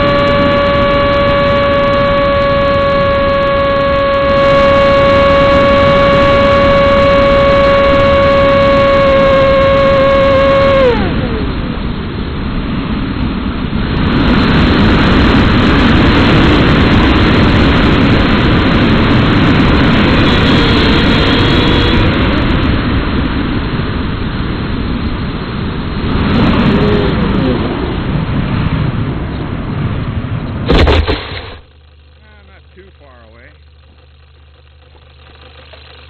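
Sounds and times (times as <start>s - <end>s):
model plane motor whining: 0.0s - 11.8s, 15.2s - 23.0s, 31.6s - 36.0s
air rushing over microphone: 0.0s - 36.0s.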